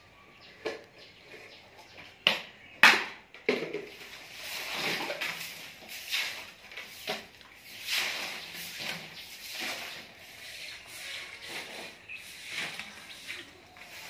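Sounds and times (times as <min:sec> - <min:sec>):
broom sweeping concrete floor: 0:03.6 - 0:14.0.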